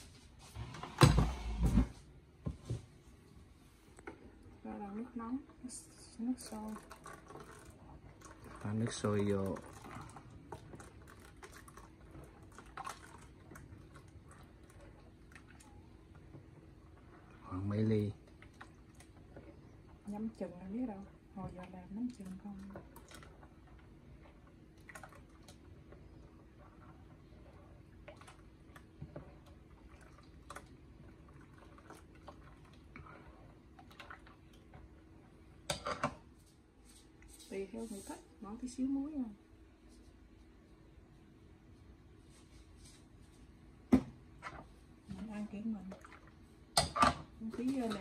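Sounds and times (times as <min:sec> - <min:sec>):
ladle stirring batter: 0:06.4 - 0:38.4.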